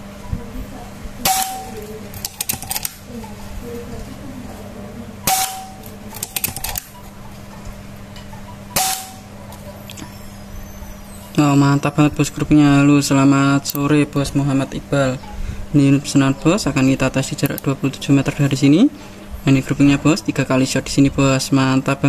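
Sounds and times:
rifle action clicking: 2.2s - 3.0s, 6.2s - 6.9s
suppressed air rifle shots: 5.3s - 6.7s, 8.8s - 9.3s.

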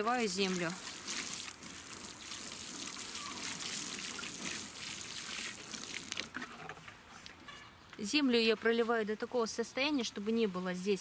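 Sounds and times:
water sprinkling onto soil: 0.0s - 6.4s.

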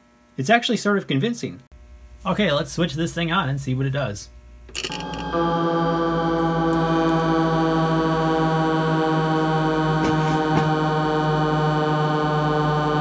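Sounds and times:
buzzy pulsing electronic engine tones: 4.8s - 13.0s.

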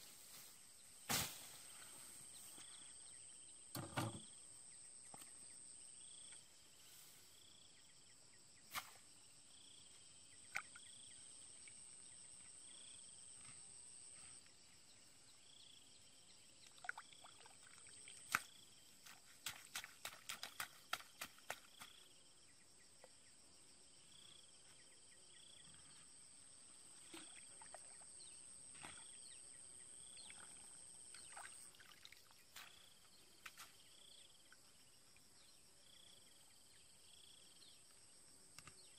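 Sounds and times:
insect chirping: 0.0s - 38.9s
insects droning: 0.0s - 38.9s
hoe chopping into wet soil: 18.3s - 22.0s.

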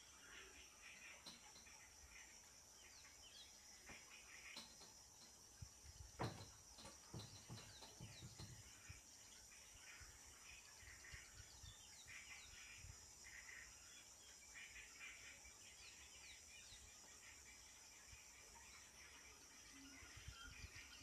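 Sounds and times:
soft low thumps: 5.9s - 8.9s
bird chirps and calls: 6.2s - 17.8s.

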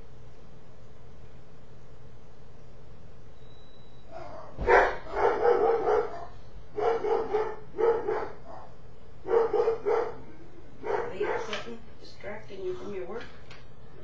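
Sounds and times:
dog barking: 4.1s - 11.7s.

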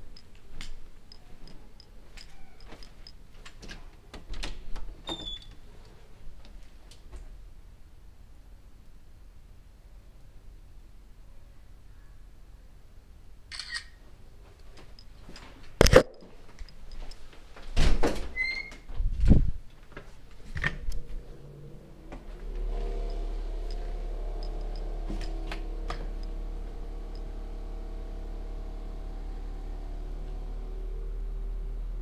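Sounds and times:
steady low hum: 0.0s - 3.3s, 19.1s - 31.4s
camera being jostled: 13.5s - 14.0s, 15.8s - 16.8s.

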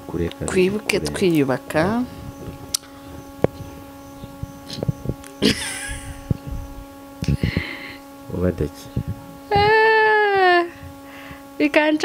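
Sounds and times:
steady electrical hum: 0.0s - 12.0s
person laughing: 5.4s - 6.4s, 7.2s - 8.0s, 9.5s - 10.8s.

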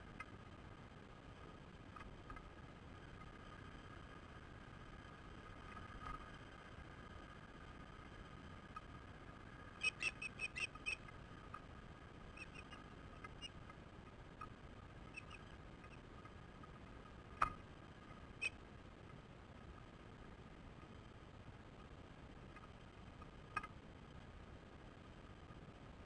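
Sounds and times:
osprey chirps: 9.8s - 11.1s, 12.3s - 13.6s, 15.1s - 16.0s.

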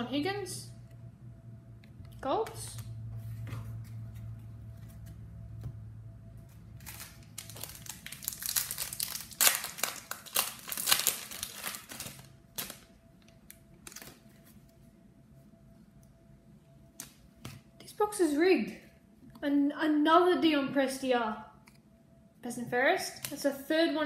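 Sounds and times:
cards rustling: 6.5s - 12.8s
wrapper tearing and crinkling: 6.8s - 12.9s, 13.8s - 14.2s.

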